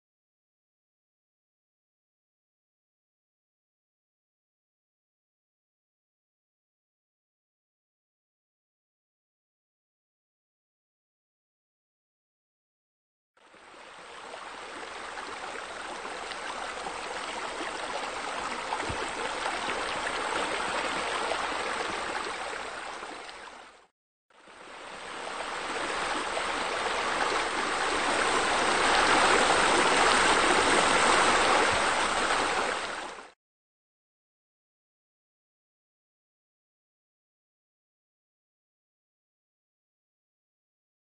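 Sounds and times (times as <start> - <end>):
running water rushing: 13.4 - 33.4.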